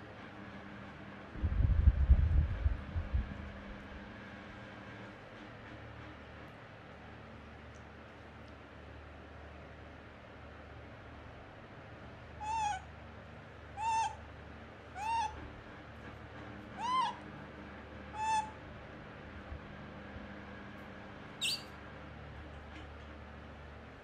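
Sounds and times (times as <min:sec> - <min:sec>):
baby macaque coo calls: 0:12.4 - 0:12.9, 0:13.8 - 0:14.2, 0:15.0 - 0:15.4, 0:16.8 - 0:17.2, 0:18.2 - 0:18.6, 0:21.4 - 0:21.7
macaque high squeak: 0:21.4 - 0:21.7.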